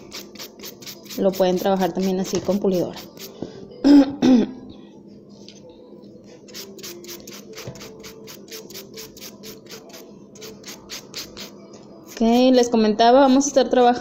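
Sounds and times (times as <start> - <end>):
nail file rasping: 6.5 - 11.5.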